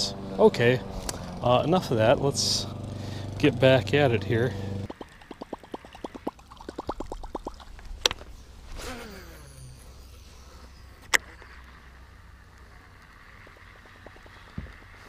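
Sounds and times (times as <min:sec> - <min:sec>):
reel spool whirring: 0:07.8 - 0:15.0.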